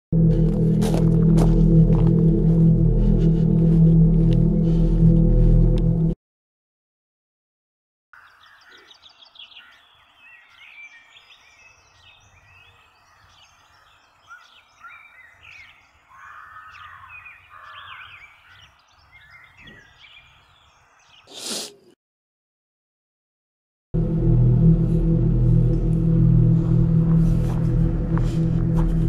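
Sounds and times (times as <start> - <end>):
small birds chirping: 8.2 - 22.0.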